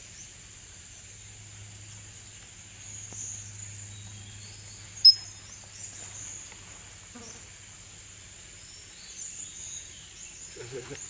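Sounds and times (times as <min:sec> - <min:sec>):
insects droning: 0:00.0 - 0:11.0
faint high chirps: 0:04.7 - 0:06.2
sharp high chirp: 0:05.0 - 0:05.3.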